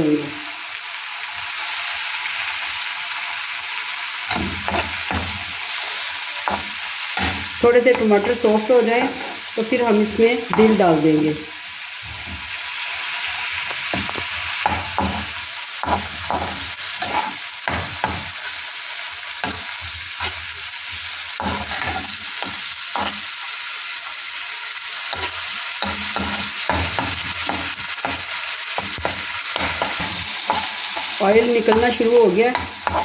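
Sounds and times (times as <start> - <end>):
food sizzling in oil: 0.0 - 33.0
metal spoon scraping pan: 4.3 - 11.0, 14.0 - 18.6, 19.4 - 20.6, 21.3 - 23.3, 25.1 - 33.0.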